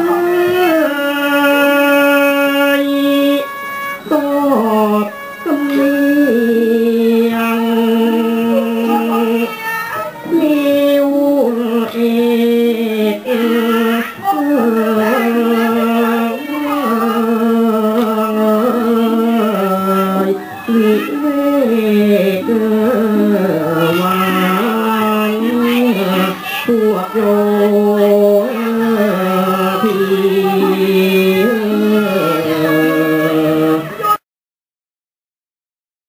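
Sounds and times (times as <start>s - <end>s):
instrumental accompaniment: 0.0s - 34.2s
person singing sliding notes: 0.0s - 34.2s.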